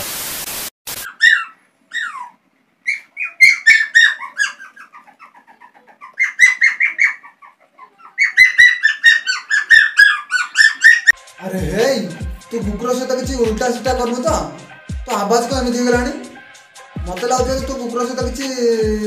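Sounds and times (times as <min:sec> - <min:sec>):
high bird-like chirping squeaks: 0:06.0 - 0:07.4, 0:08.0 - 0:11.2.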